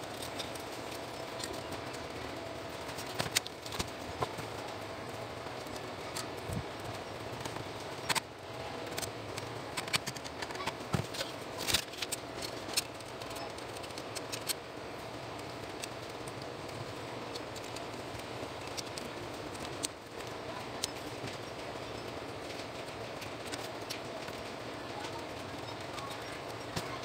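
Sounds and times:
steady background hum: 0:00.0 - 0:27.0.

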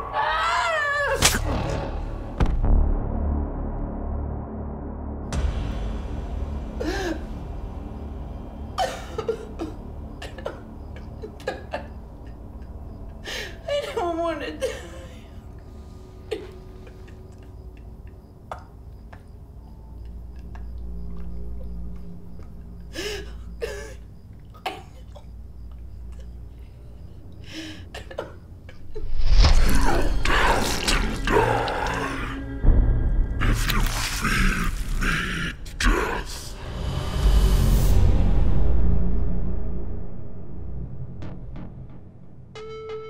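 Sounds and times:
horror score music: 0:00.0 - 0:43.0
woman sobbing and whimpering: 0:11.0 - 0:15.6.

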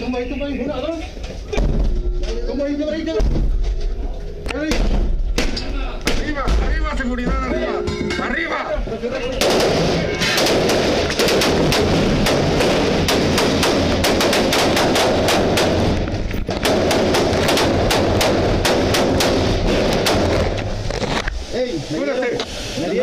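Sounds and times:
automatic rifle fire: 0:09.4 - 0:20.6.

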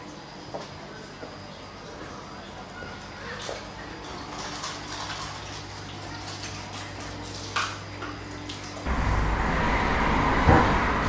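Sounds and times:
aquarium water trickling: 0:00.0 - 0:11.0
loud rushing noise: 0:08.9 - 0:11.0.

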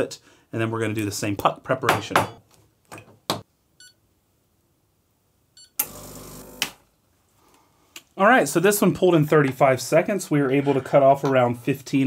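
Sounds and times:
espresso machine pump buzzing: 0:05.8 - 0:06.7.

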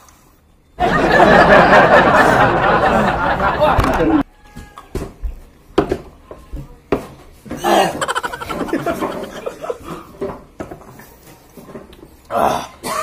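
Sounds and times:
young men laughing: 0:00.8 - 0:04.2, 0:07.7 - 0:10.1.

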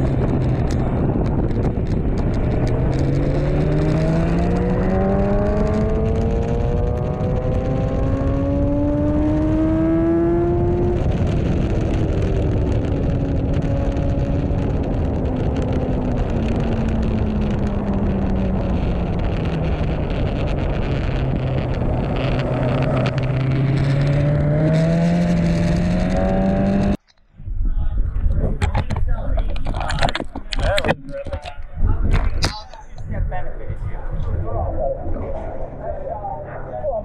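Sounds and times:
motorcycle engine: 0:00.0 - 0:27.0
wind rush on microphone: 0:00.0 - 0:37.0.

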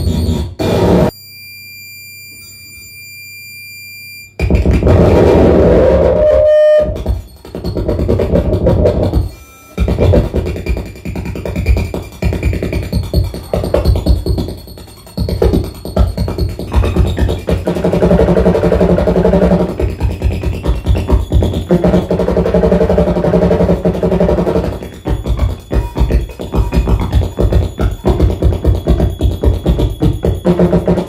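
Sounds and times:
loud distorted feedback: 0:00.0 - 0:01.2, 0:04.3 - 0:31.0
brief steady tone: 0:00.0 - 0:04.4, 0:06.1 - 0:07.4.

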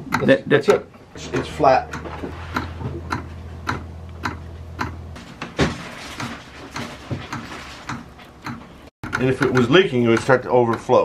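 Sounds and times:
electric fuel pump humming: 0:00.9 - 0:09.3.

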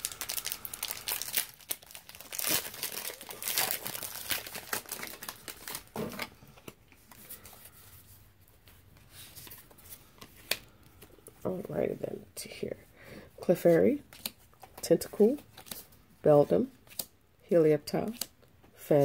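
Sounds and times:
foil wrapper tearing and crinkling: 0:00.0 - 0:06.0
wrapper and cards rustling: 0:00.0 - 0:11.5.

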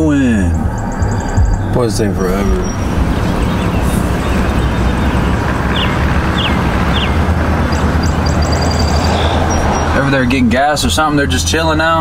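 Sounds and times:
vehicle interior rumble: 0:00.0 - 0:12.0.

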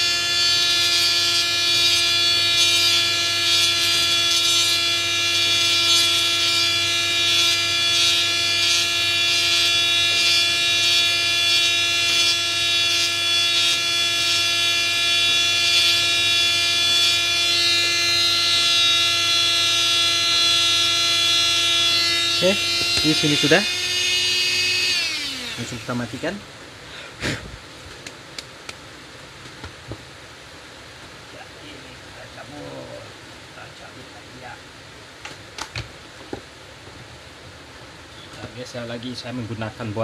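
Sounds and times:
burr grinding chip: 0:00.0 - 0:26.4
rotary drill high whine: 0:00.0 - 0:26.5.

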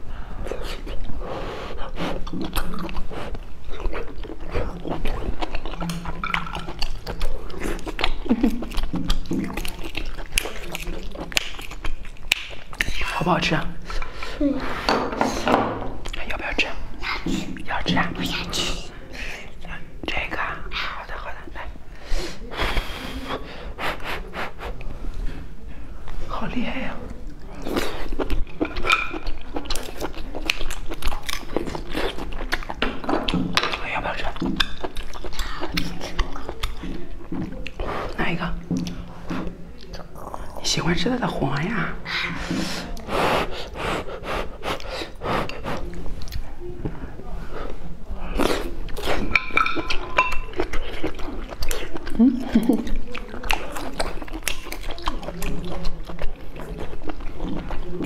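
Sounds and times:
chewing and mouth smacks: 0:01.8 - 0:14.2, 0:27.0 - 0:41.0, 0:41.6 - 0:46.6, 0:48.3 - 0:58.0.

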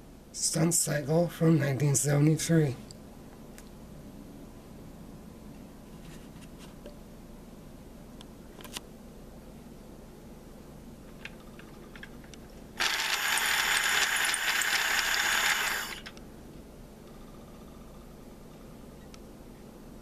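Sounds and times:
small toy electric motor: 0:12.8 - 0:16.1.

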